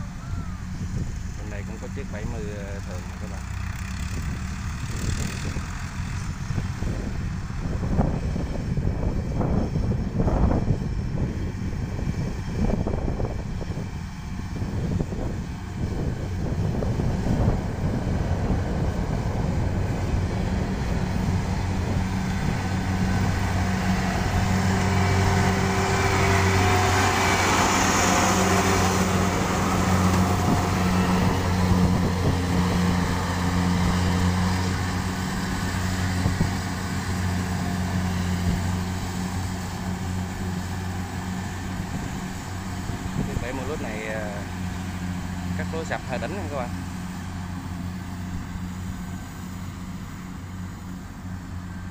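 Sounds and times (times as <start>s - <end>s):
combine harvester engine hum: 0.0s - 51.9s
rush of cutting and threshing: 12.4s - 51.9s.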